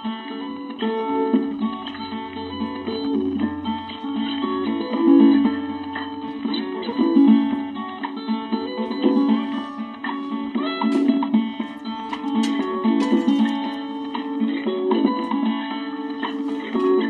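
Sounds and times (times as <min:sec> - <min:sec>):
acoustic guitar music: 0:00.0 - 0:17.0
low bass note: 0:00.8 - 0:13.4.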